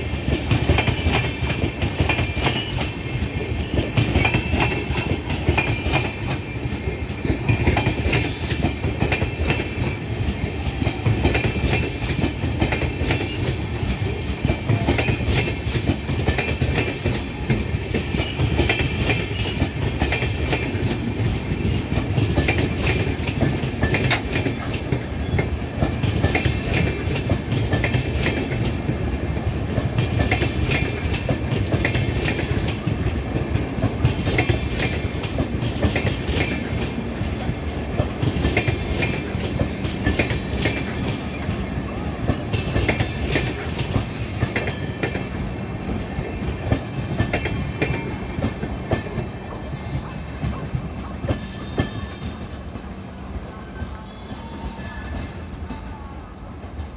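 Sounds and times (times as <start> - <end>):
train rumble: 0.0 - 56.9
train wheels clickety-clack: 0.0 - 56.9
high wheel squeal: 49.5 - 52.5, 53.8 - 55.8.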